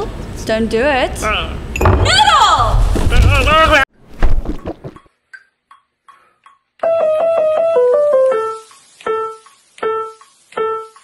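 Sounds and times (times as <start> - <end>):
piano notes: 6.8 - 11.0.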